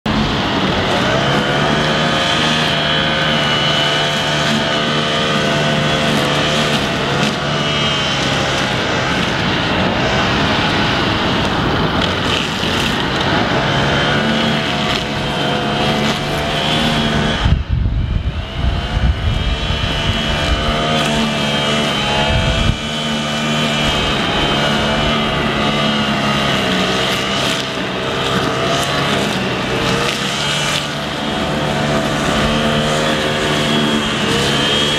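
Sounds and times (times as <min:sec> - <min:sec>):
brushcutter engine at high revs: 0:00.0 - 0:34.9
low rumble on microphone: 0:17.0 - 0:20.8, 0:22.1 - 0:23.0.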